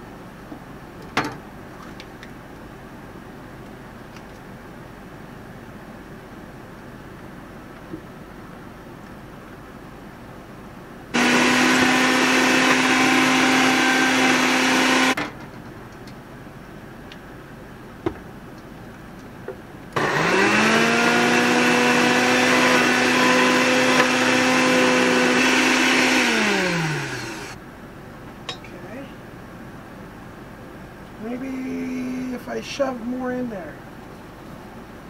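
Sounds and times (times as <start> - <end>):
blender running: 11.2 - 15.2, 20.0 - 27.6.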